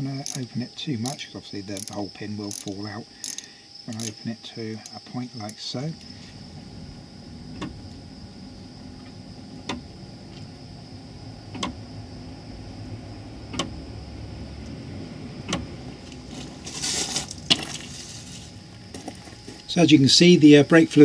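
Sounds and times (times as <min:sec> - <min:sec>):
sharp metallic click: 0:13.5 - 0:13.8
short rustling hiss: 0:16.0 - 0:19.7.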